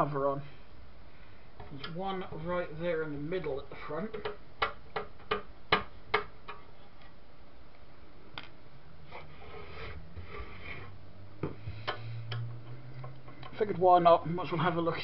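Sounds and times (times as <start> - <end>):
scraping rub: 9.0 - 11.0.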